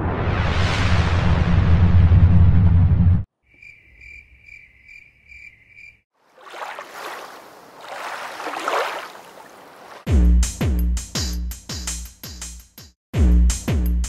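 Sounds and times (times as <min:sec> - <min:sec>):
cricket chirping: 0:03.4 - 0:10.0
rush of noise like water: 0:06.3 - 0:10.1
music: 0:10.1 - 0:14.0.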